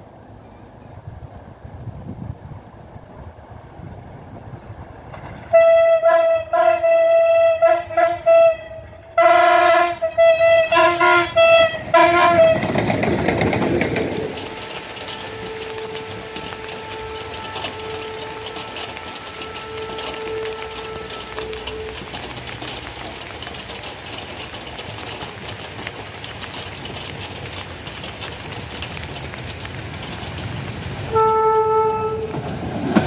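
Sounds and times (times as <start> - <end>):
train passing with rush: 0.0 - 33.0
wheels clattering on rail: 3.5 - 33.0
locomotive horn tooting: 5.5 - 12.9, 14.0 - 23.4, 31.0 - 33.0.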